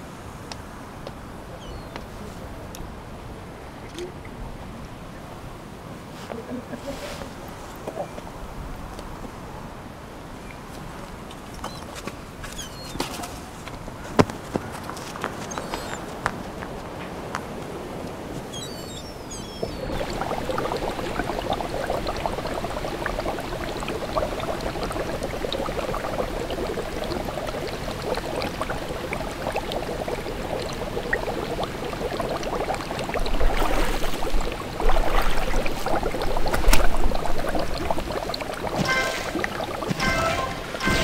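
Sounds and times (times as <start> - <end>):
whirlpool jets bubbling water: 19.1 - 41.0.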